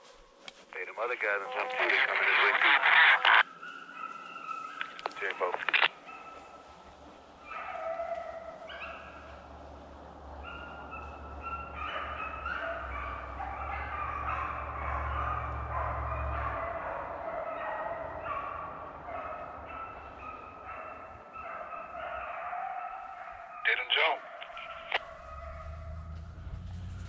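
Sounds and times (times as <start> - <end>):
hounds baying and yelping: 0.0 - 27.0.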